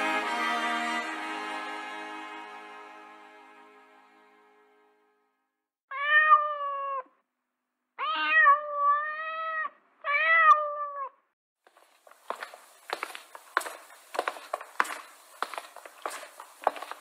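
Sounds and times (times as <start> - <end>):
cat meowing: 5.9 - 7.2, 8.0 - 11.2.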